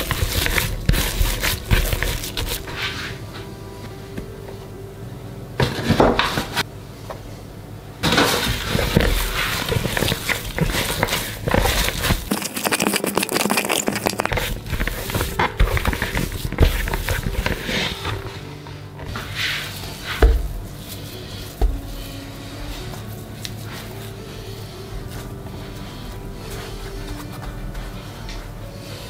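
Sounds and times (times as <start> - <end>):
handling sounds: 0.0 - 3.5, 8.0 - 28.5
dough squishing and crackling: 0.0 - 4.4, 8.0 - 29.0.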